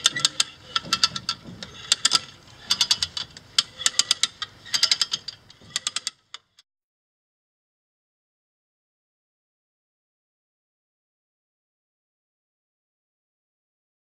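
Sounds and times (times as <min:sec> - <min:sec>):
ratchet pawl clicking: 0:00.0 - 0:06.5.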